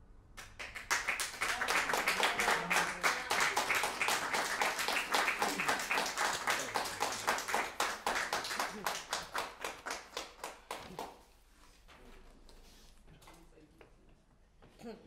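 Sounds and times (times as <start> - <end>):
audience applause: 0.4 - 11.2.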